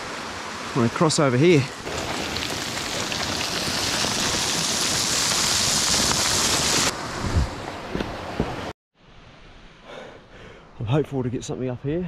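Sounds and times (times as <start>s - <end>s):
creek rushing over stones: 0.0s - 8.7s.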